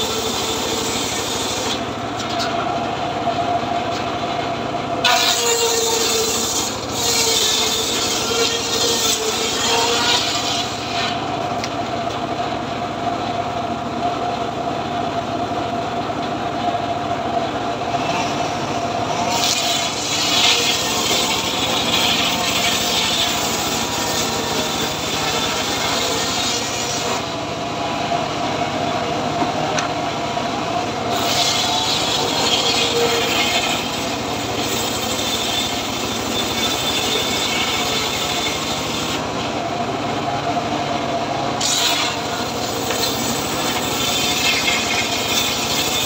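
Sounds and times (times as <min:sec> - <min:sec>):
circular saw ripping boards: 0:00.0 - 0:02.6, 0:05.0 - 0:11.8, 0:19.2 - 0:27.3, 0:31.1 - 0:39.2, 0:41.6 - 0:46.0
steady machine drone: 0:00.0 - 0:46.0.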